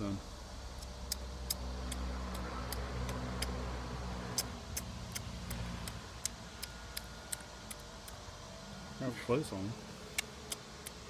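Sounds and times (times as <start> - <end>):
low mechanical hum: 0.0 - 11.0
sharp ticks: 0.8 - 3.6, 4.3 - 8.3, 10.1 - 11.0.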